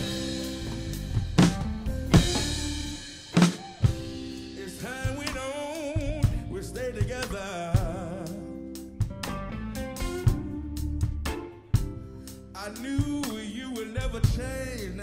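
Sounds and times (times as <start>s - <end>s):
bass drum hits: 0.0s - 5.5s
lead melody with heavy vibrato: 0.0s - 5.5s
blues-rock music: 0.0s - 15.0s.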